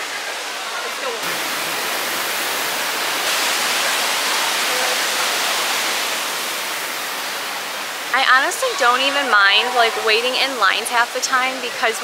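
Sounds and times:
waterfall rushing hiss: 0.0s - 12.0s.

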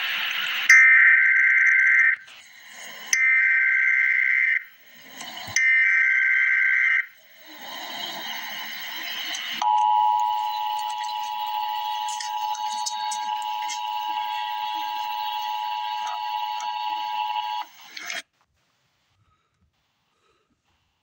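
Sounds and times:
shrill warbling data bursts: 0.0s - 18.2s
noise: 0.0s - 21.0s
harsh two-tone attention signal: 9.5s - 17.7s.

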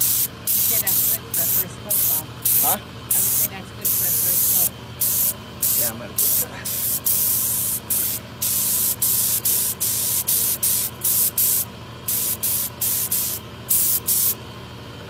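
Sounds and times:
paint spray gun hissing: 0.0s - 14.4s
steady low hum: 0.0s - 15.0s.

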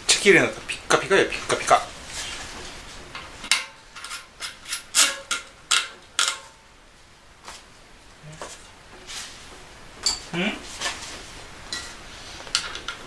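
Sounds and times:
metal clicks and scrapes: 3.2s - 6.4s.

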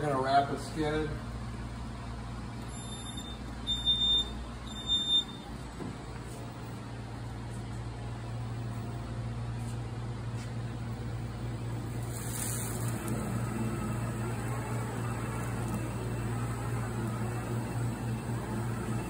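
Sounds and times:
high-pitched warning beeps: 2.7s - 5.5s
turntable drive humming: 10.8s - 19.0s.

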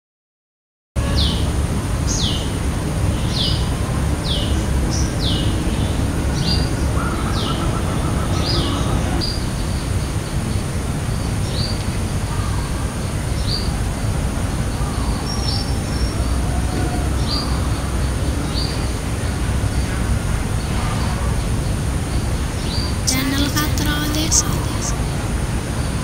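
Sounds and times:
steady low rumble: 1.4s - 26.0s
bird chirping: 3.2s - 9.9s.

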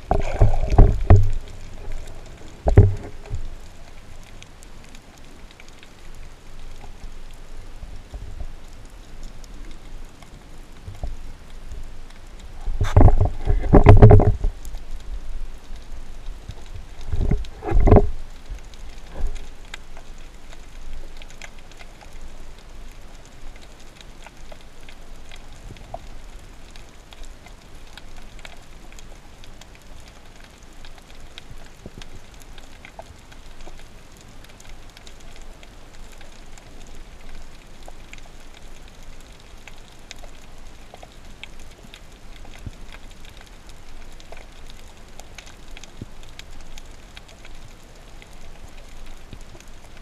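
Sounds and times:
soft hiss: 0.0s - 50.0s
underwater crackle of tiny clicks: 0.0s - 50.0s
low thumps: 0.1s - 1.4s, 2.6s - 3.4s.

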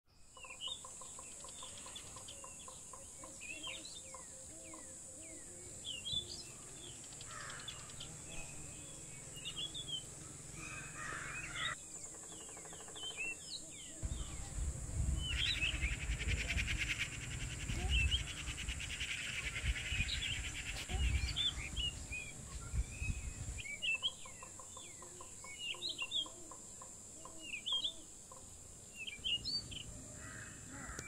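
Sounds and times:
forest birds chirping: 0.1s - 31.0s
low rumble: 14.0s - 18.8s.

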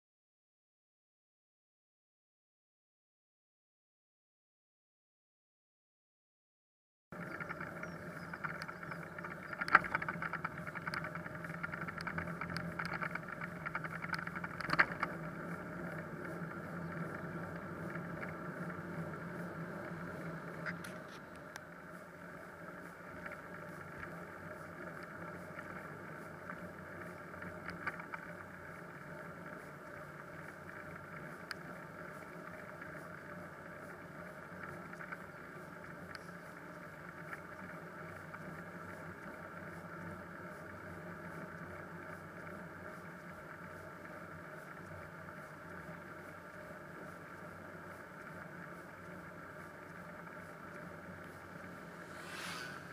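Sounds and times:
road and wind rush: 7.2s - 35.2s, 45.8s - 52.9s
faint low hum: 7.2s - 52.9s.

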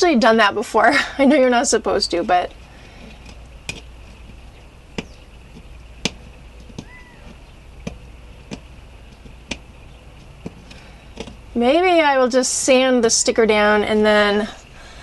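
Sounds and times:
low steady hum: 0.0s - 15.0s
fingernails tapping on metal: 2.5s - 11.6s
faint chirp: 4.0s - 9.2s.

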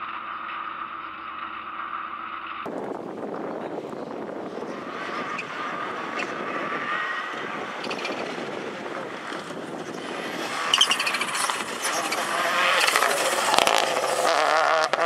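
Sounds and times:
rally car engine approaching: 0.0s - 15.0s
sharp cracks: 7.6s - 15.0s.

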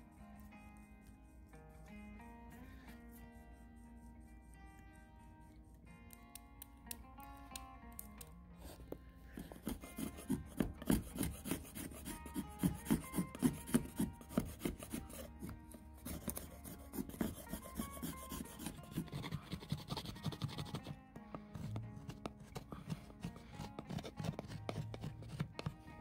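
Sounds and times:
knife shaving and scraping wood: 8.6s - 26.0s
saw blade rasping through wood: 9.4s - 21.0s, 21.6s - 25.8s.

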